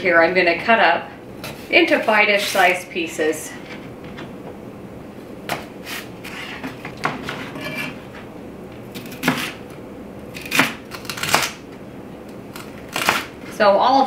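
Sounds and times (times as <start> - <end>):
knife chopping on cutting board: 9.0 - 9.6.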